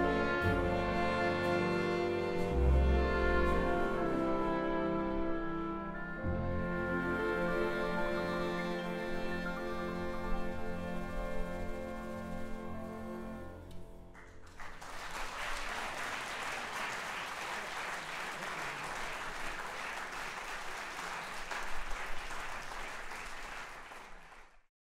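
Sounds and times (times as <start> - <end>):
orchestra held chord: 0.0 - 13.9
audience applause: 14.1 - 24.7.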